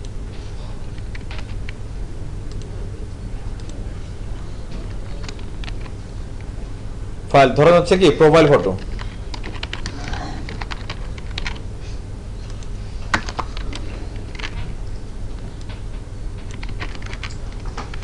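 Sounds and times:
low steady hum: 0.0s - 18.0s
keyboard typing clicks: 2.5s - 2.7s, 8.9s - 11.6s, 15.6s - 18.0s.

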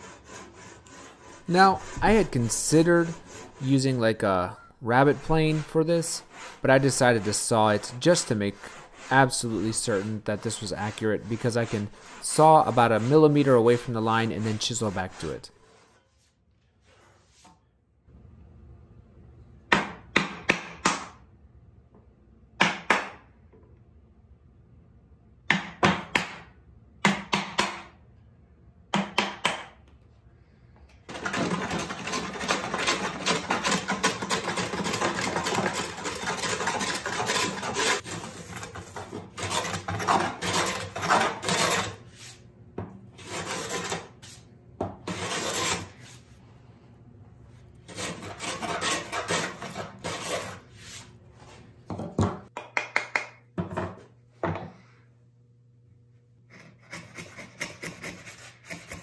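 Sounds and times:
chisel scraping wood: 0.0s - 16.2s, 31.1s - 42.4s, 43.2s - 44.4s, 45.0s - 46.2s, 47.8s - 51.1s, 56.5s - 59.0s
hand plane strokes on wood: 0.0s - 16.3s, 31.1s - 42.4s, 43.2s - 44.4s, 45.1s - 46.2s, 47.9s - 51.1s
mallet striking chisel: 28.9s - 29.8s.

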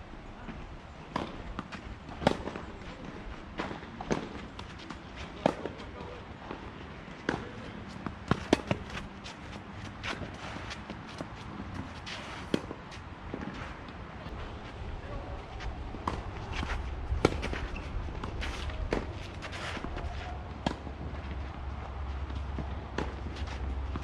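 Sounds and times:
rackets striking tennis ball: 7.2s - 14.0s, 16.0s - 21.2s.

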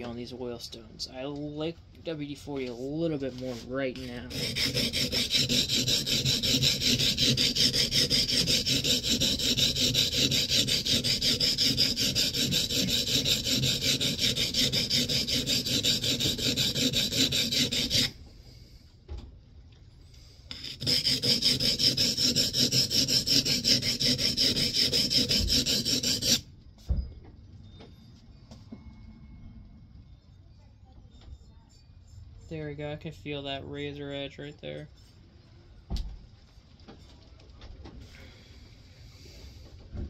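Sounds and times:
plane iron rubbing on oilstone: 2.7s - 18.2s, 20.5s - 26.4s.

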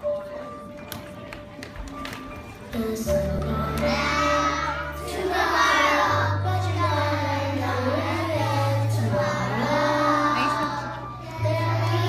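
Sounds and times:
music backing track: 0.0s - 12.0s
girls singing together: 2.8s - 12.0s.

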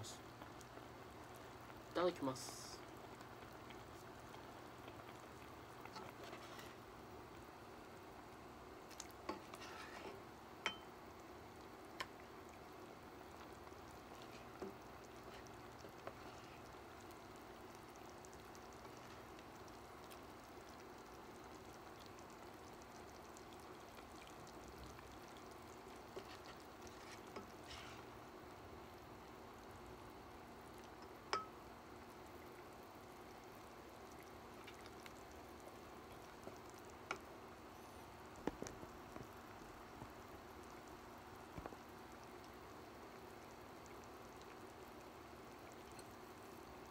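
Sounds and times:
faint steady hum: 0.0s - 46.9s
ladle clinking on pan and bowl: 10.6s - 10.9s.

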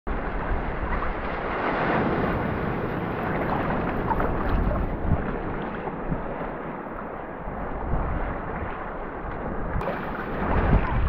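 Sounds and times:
ocean water rushing and splashing: 0.1s - 11.0s
wind rumble on microphone: 0.1s - 11.0s.

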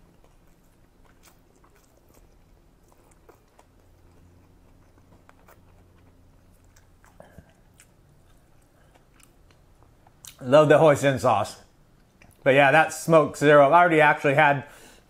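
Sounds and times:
faint chewing: 0.0s - 10.5s, 11.9s - 12.5s.

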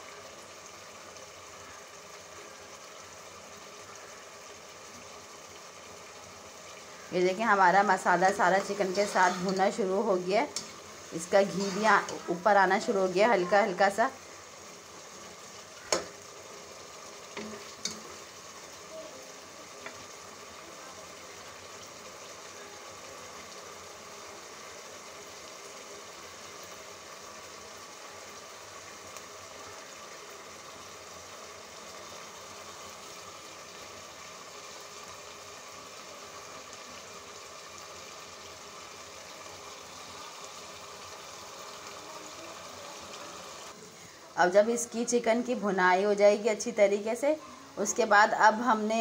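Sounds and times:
chicken sizzling in a pot: 0.0s - 49.0s.

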